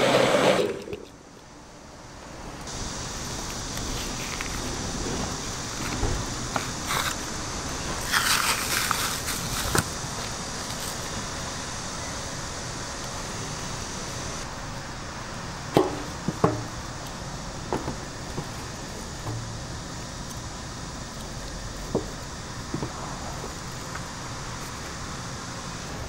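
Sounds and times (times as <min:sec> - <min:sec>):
street traffic hum: 0:00.0 - 0:26.0
sharp knocks: 0:15.7 - 0:16.8, 0:19.2 - 0:19.6.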